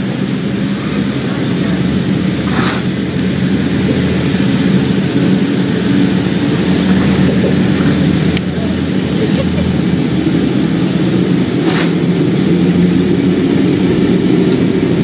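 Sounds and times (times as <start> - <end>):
car engine running: 0.0 - 15.0.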